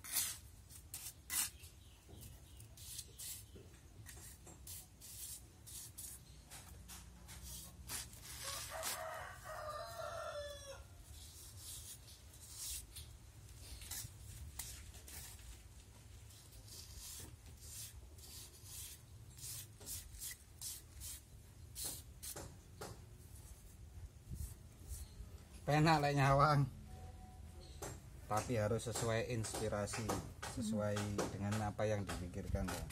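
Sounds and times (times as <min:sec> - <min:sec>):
trowel scraping cement: 0:00.0 - 0:01.8, 0:02.7 - 0:09.2, 0:11.2 - 0:15.6, 0:16.2 - 0:22.5
rooster crowing: 0:08.4 - 0:11.0.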